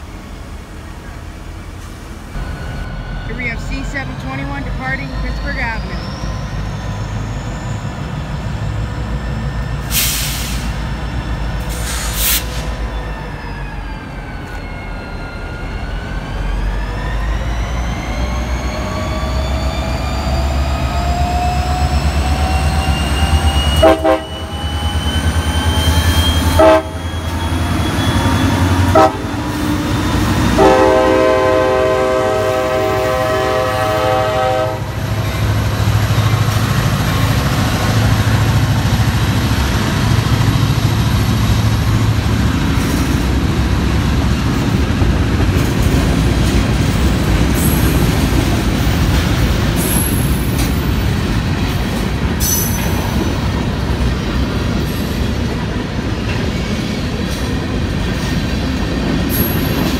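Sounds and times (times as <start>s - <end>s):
locomotive engine whine: 0.0s - 59.9s
train air horn blasts: 23.8s - 24.5s, 26.5s - 27.1s, 28.8s - 29.5s, 30.5s - 35.1s.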